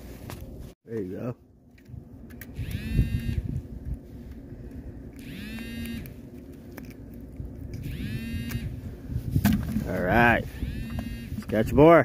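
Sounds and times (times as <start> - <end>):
mobile phone ringtone: 7.9 - 8.7, 10.5 - 11.4.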